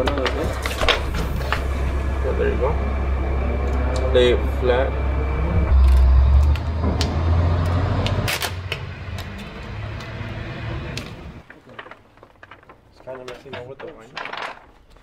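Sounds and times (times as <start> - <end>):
vinyl film rustling and crinkling: 0.0 - 1.8, 11.4 - 15.0
heavy low rumble: 0.0 - 12.6.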